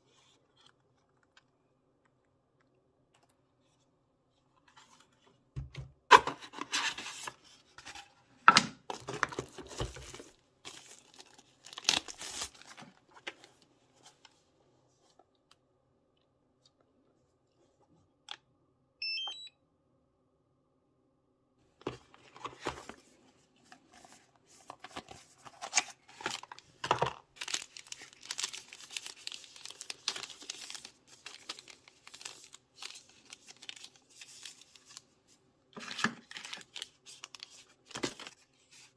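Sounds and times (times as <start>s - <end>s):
plastic packaging crinkling: 8.9s - 13.4s, 24.8s - 35.0s.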